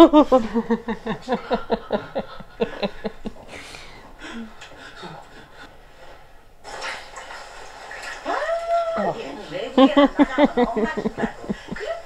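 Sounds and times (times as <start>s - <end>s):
women laughing: 0.0s - 3.5s, 9.6s - 12.0s.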